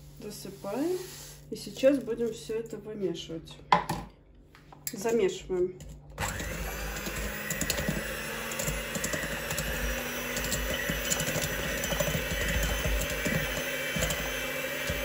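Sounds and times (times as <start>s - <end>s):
electric hand mixer running: 6.2s - 15.0s.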